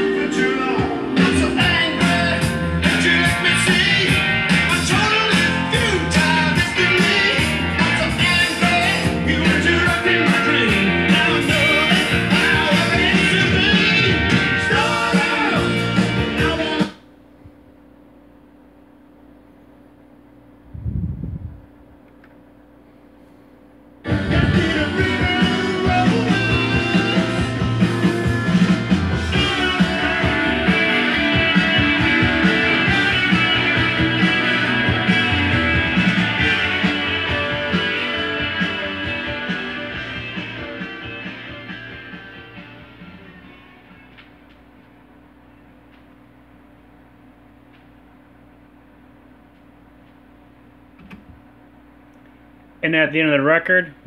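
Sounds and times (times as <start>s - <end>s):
rock and roll song with singer: 0.0s - 17.1s, 24.0s - 44.4s.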